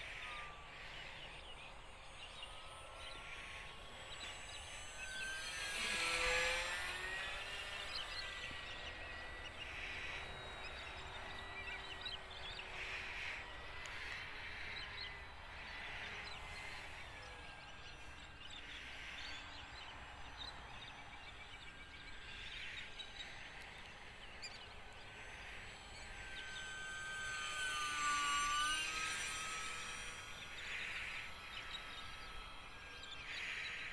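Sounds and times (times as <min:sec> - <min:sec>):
model plane motor whining: 0:00.0 - 0:33.9.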